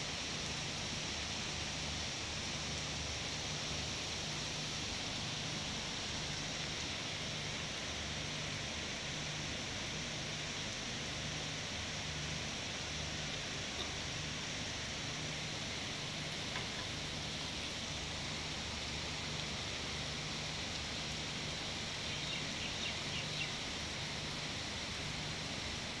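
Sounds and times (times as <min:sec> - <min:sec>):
heavy rain hissing: 0:00.0 - 0:26.0.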